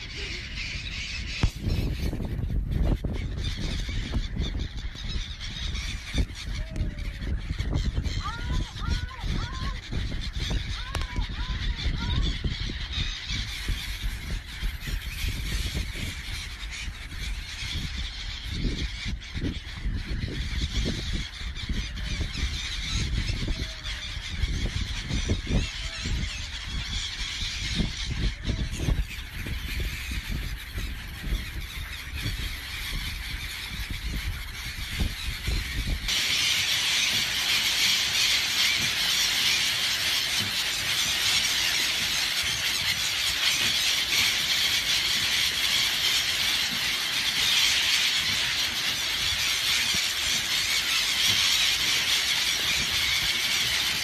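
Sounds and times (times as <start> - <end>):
gulls calling: 0.0 - 54.0.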